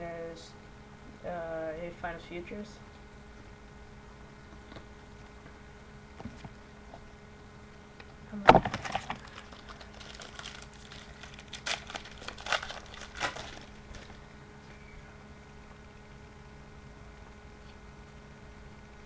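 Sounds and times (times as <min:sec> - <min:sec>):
foil wrapper ripping: 0:08.7 - 0:14.2
wrapper crinkling and rustling: 0:08.7 - 0:14.2.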